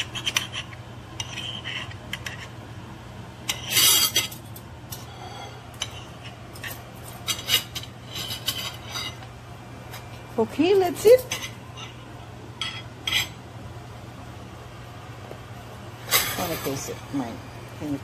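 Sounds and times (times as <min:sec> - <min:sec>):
knife and fork scraping on plate: 0:00.0 - 0:02.6, 0:03.5 - 0:09.3, 0:11.0 - 0:12.0, 0:12.6 - 0:13.4.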